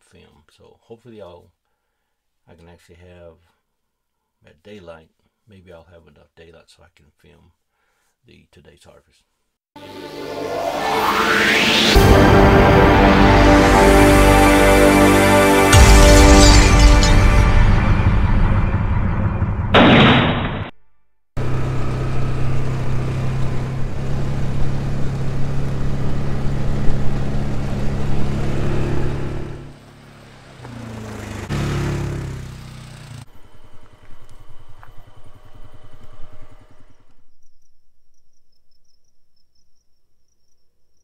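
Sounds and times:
vehicle engine running: 21.4 - 36.9
crickets chirping: 36.9 - 41.0.

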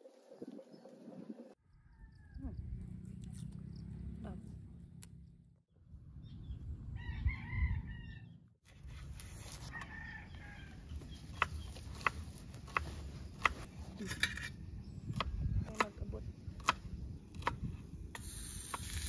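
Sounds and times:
rooster crowing: 1.6 - 2.6, 7.0 - 8.4, 9.6 - 10.8.

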